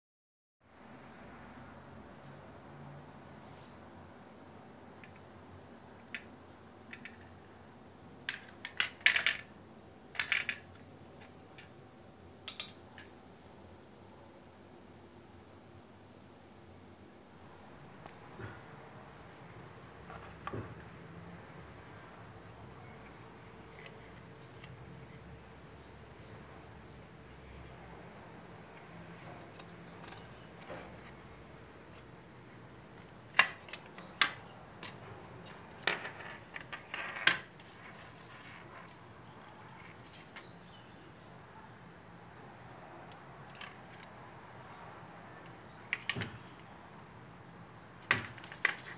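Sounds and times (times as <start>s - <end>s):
computer parts clattering on tile floor: 6.9s - 7.3s, 8.3s - 9.5s, 10.2s - 11.7s, 33.3s - 39.0s.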